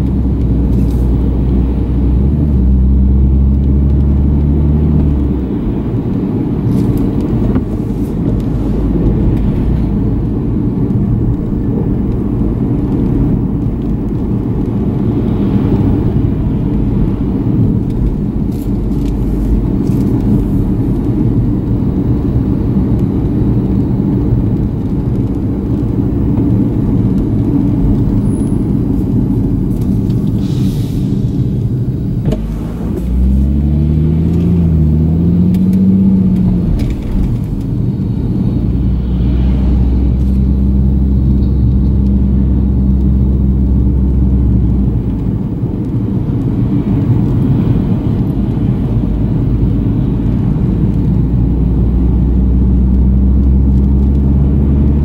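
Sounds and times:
car engine from inside cabin: 0.0 - 55.0.

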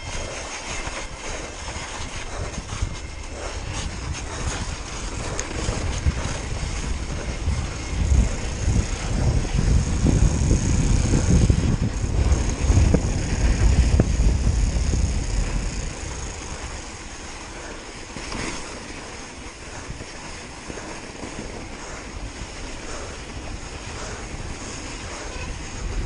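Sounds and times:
heavy low rumble: 0.0 - 26.0
tyres hissing on snow: 0.0 - 26.0
wind buffeting microphone: 0.0 - 26.0.

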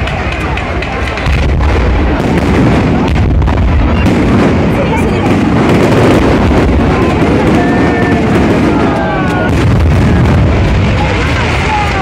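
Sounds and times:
deep rumble: 0.0 - 12.0
fireworks bangs and crackling: 0.0 - 12.0.

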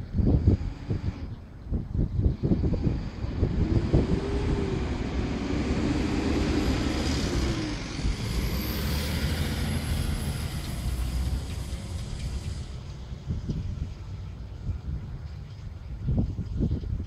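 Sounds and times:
vehicle engine hum passing: 0.0 - 17.0
wind buffeting microphone: 0.0 - 17.0.

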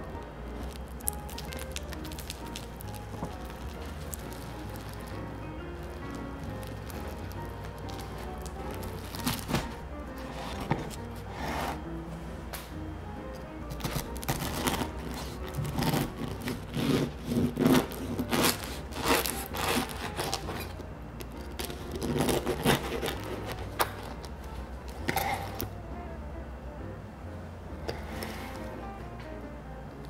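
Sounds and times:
knife sawing through bread crust: 9.2 - 11.8, 13.8 - 20.8, 21.6 - 24.2, 25.1 - 25.7.

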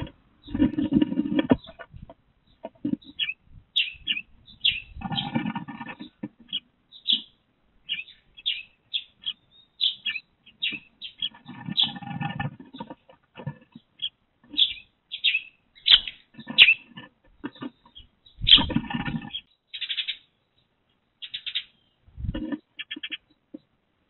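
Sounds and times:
scuffling inside nest box: 0.0 - 1.9
sparrow chirping: 0.0 - 23.5.

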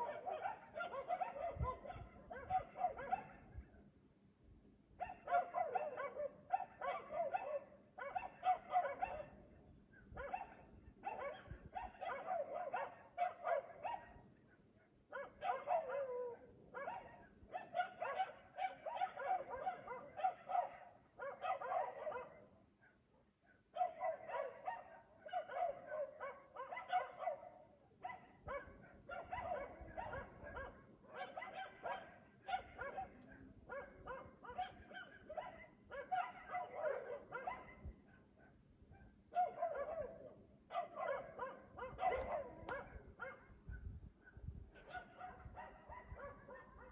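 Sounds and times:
dog barking rapidly: 0.0 - 3.5, 5.0 - 9.4, 10.2 - 14.2, 15.1 - 22.5, 23.8 - 37.8, 39.4 - 43.5, 44.3 - 46.9.

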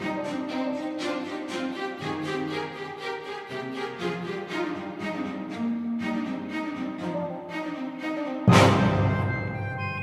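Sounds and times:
orchestral music: 0.0 - 10.0
loud low orchestral hit: 8.5 - 10.0.

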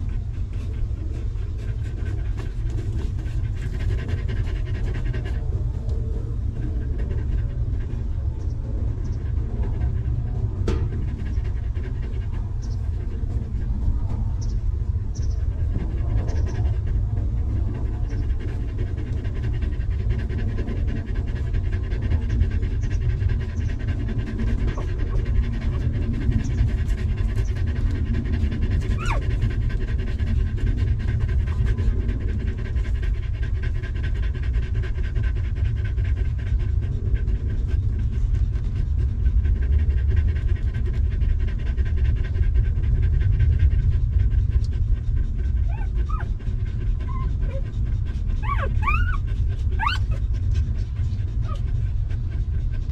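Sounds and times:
dog panting: 0.0 - 52.9
dog squeak: 29.0 - 29.2.

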